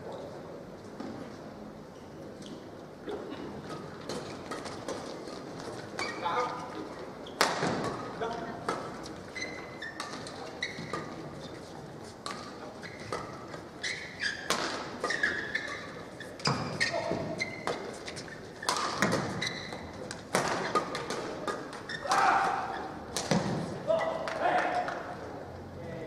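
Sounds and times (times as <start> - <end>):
short high squeaks: 9.3 - 10.9, 13.8 - 18.7
voices echoing in hall: 21.9 - 26.0.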